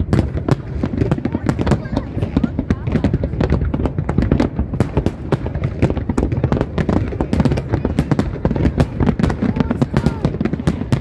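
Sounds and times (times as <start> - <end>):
deep fireworks booms: 0.0 - 11.0
fireworks bangs and crackles: 0.0 - 11.0.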